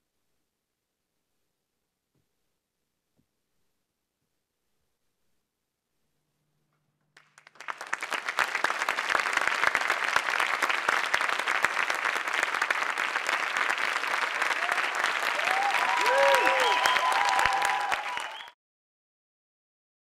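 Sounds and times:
audience clapping: 0:07.2 - 0:18.6.

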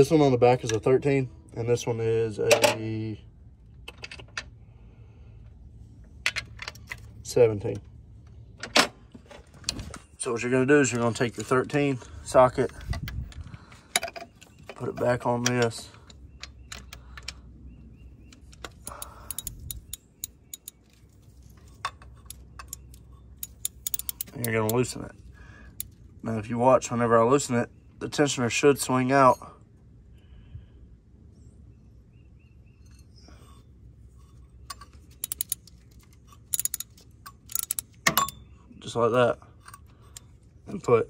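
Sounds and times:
ratchet wrench clicking against metal: 0:18.4 - 0:21.0, 0:22.2 - 0:25.0, 0:34.7 - 0:38.4.

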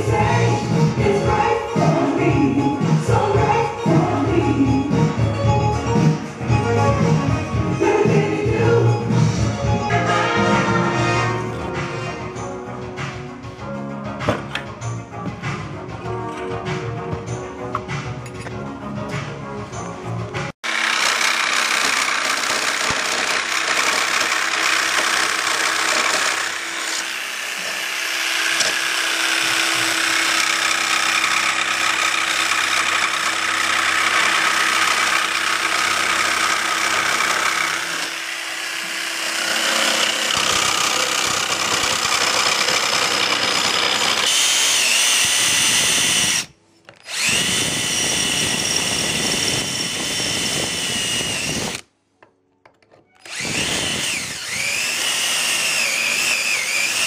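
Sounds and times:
cordless drill whining: 0:20.6 - 0:51.9, 0:53.2 - 0:57.0
jigsaw cutting metal: 0:20.6 - 0:51.9, 0:53.2 - 0:57.0.

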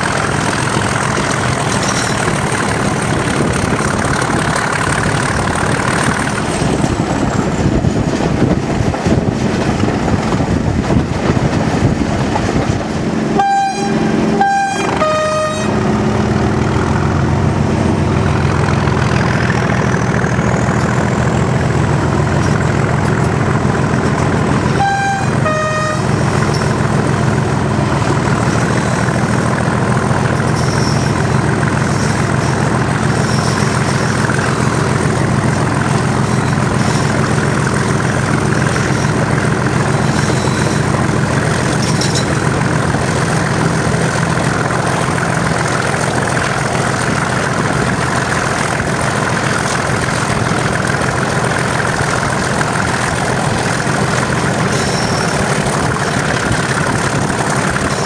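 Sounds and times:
diesel locomotive engine running: 0:00.0 - 0:58.0
two-tone train horn blasts: 0:13.3 - 0:15.9, 0:24.7 - 0:26.2.

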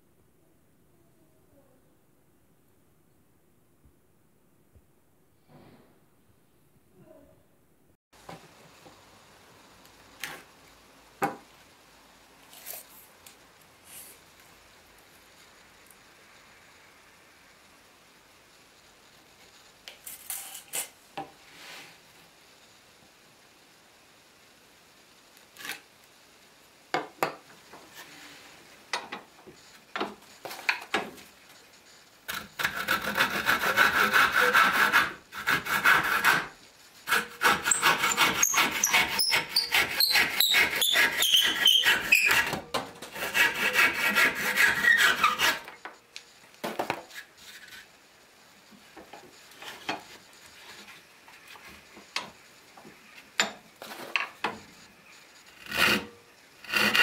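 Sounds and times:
handsaw cutting wood: 0:32.3 - 0:45.7, 0:55.5 - 0:57.0.

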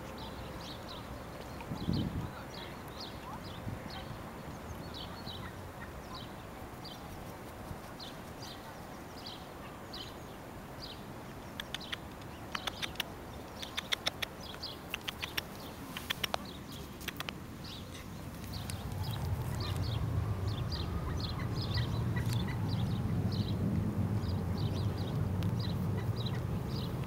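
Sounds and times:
sparrow chirping: 0:00.0 - 0:27.0
sharp irregular clicks: 0:11.6 - 0:16.4, 0:17.0 - 0:17.4.

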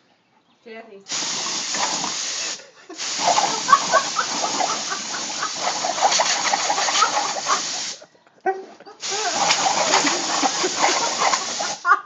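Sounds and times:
compressed air hissing: 0:01.1 - 0:08.0, 0:09.0 - 0:12.0.

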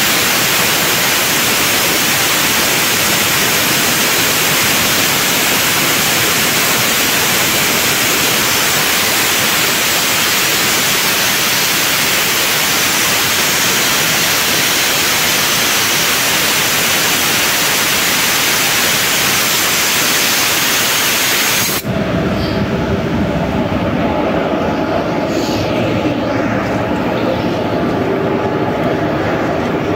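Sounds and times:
loud steady air hiss: 0:00.0 - 0:22.8.

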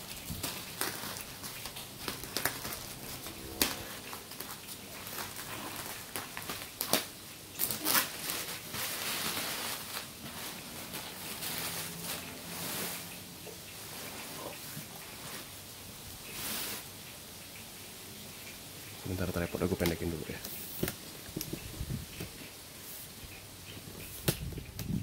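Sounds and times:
plastic ripping: 0:00.0 - 0:13.1
plastic wrapping crinkling: 0:00.0 - 0:13.3.

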